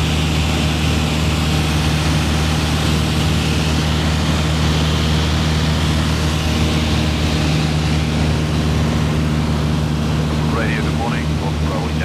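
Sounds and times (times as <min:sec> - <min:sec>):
aircraft engine hum in cabin: 0:00.0 - 0:12.0.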